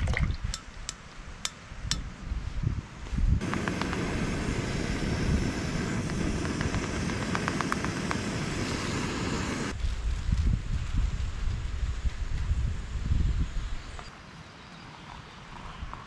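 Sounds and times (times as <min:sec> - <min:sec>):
gas stove burner roaring: 0:03.4 - 0:09.8.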